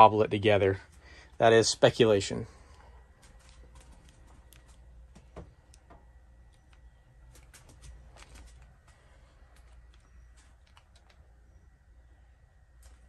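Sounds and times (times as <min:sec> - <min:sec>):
low steady hum: 0:00.0 - 0:13.0
faint clicks and ticks: 0:02.7 - 0:11.5.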